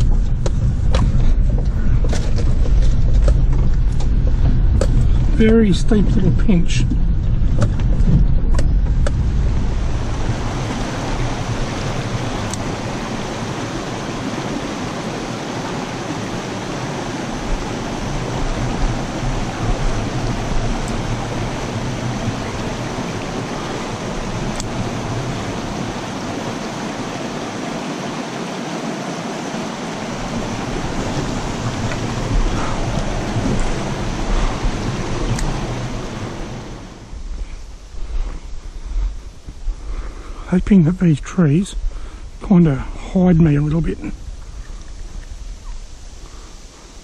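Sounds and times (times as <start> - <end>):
water cascading into a pool: 9.8 - 37.0.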